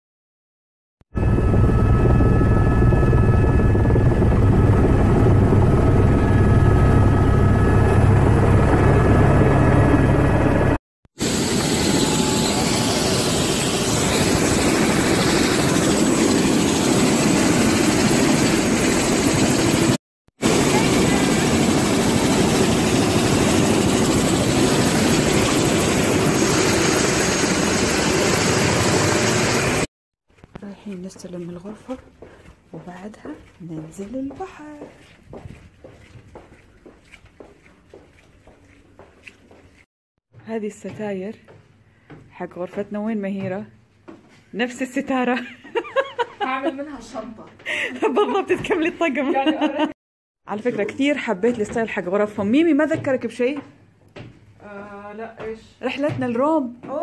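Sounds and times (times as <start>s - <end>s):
helicopter engine and rotor drone: 1.2s - 29.9s.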